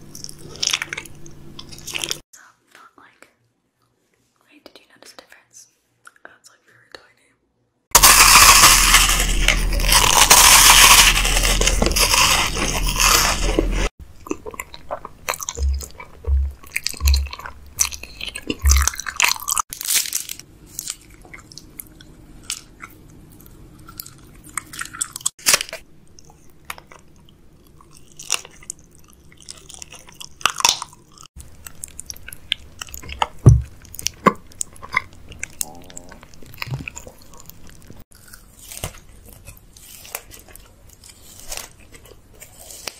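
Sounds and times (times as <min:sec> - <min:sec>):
crunching bites of snacks: 0:00.0 - 0:02.2, 0:07.9 - 0:42.9
chewing and wet mouth clicks: 0:14.2 - 0:19.6, 0:26.1 - 0:41.2.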